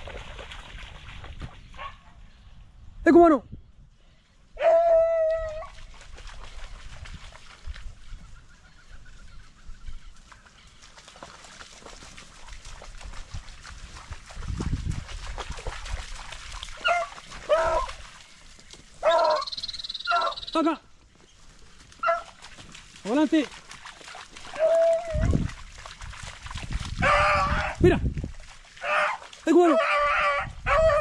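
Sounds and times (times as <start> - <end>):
distant dog yelping: 4.6 - 5.8, 16.8 - 17.9, 19.0 - 20.5, 22.0 - 22.3, 29.8 - 31.0
dogs baying loudly: 16.8 - 18.0, 19.0 - 20.5, 22.0 - 22.4, 27.0 - 27.8.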